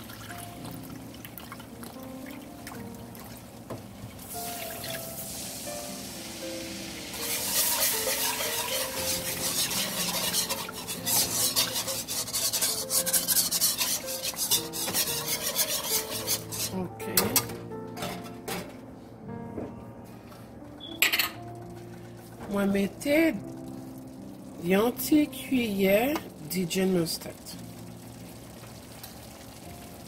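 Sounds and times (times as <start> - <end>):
liquid hissing in hot pan: 4.2 - 16.8
whisk scraping a pan: 7.1 - 16.9.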